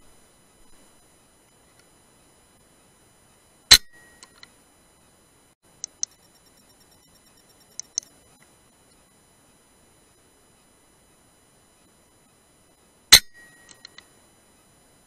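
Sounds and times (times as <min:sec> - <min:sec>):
light clicks: 0:05.8 - 0:06.2, 0:07.7 - 0:08.5.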